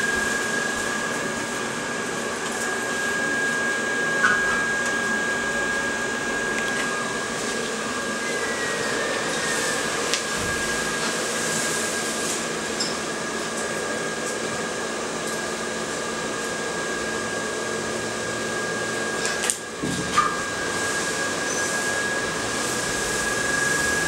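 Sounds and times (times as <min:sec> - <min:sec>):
high whine: 0:00.0 - 0:13.2, 0:18.2 - 0:24.0
whirring fan-like drone: 0:00.0 - 0:24.0.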